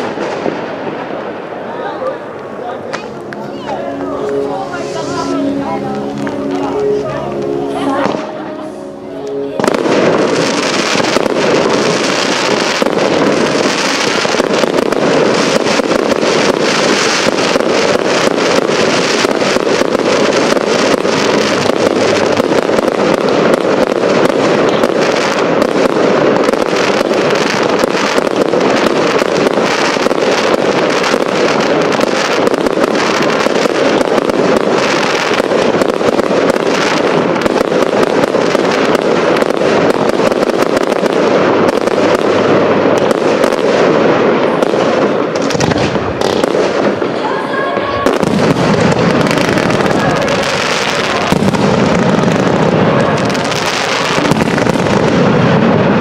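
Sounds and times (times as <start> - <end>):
fireworks bangs and crackling: 0.0 - 56.0.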